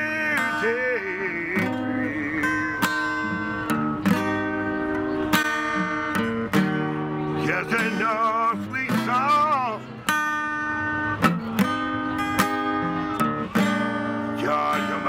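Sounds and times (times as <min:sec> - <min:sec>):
man singing with vibrato: 0:00.0 - 0:03.7, 0:07.4 - 0:09.8, 0:13.8 - 0:15.0
acoustic guitar strummed chords: 0:00.0 - 0:15.0.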